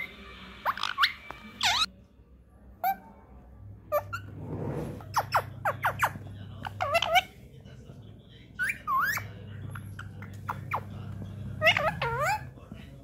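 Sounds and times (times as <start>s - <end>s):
parakeet chirps and squawks: 0.0s - 1.9s, 2.8s - 3.2s, 3.9s - 7.4s, 8.6s - 12.6s.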